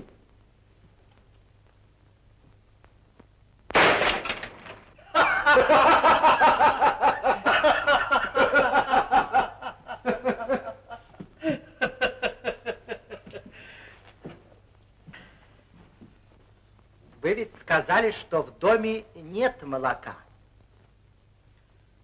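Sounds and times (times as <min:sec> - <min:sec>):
pistol shot: 0:03.7 - 0:04.9
man laughing heartily: 0:05.0 - 0:13.8.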